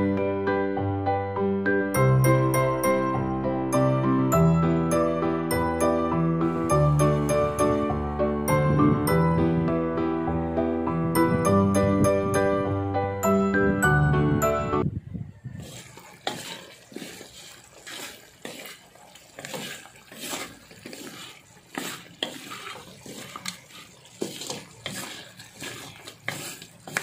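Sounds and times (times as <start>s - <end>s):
water sloshing and splashing: 15.5s - 27.0s.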